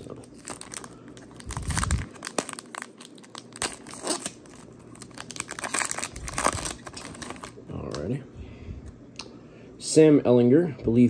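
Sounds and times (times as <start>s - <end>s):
foil wrapper tearing and crinkling: 0.0s - 8.0s.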